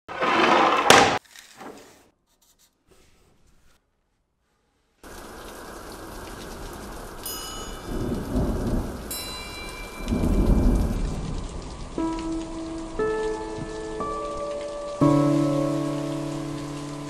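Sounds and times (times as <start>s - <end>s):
steady rain: 5.0s - 17.0s.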